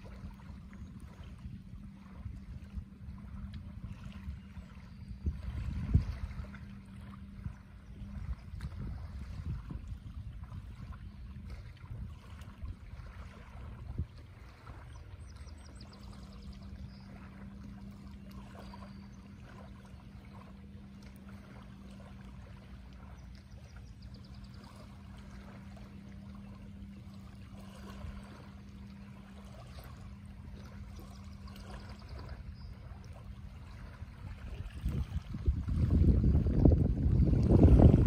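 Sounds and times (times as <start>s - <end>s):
steady low hum: 0.0s - 38.0s
waves lapping on pebbles: 24.5s - 32.2s.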